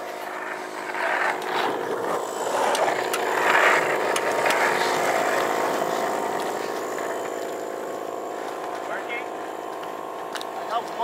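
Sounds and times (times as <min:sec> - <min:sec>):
rough scraping noise: 0:00.0 - 0:07.4
vehicle engine idling: 0:00.0 - 0:11.0.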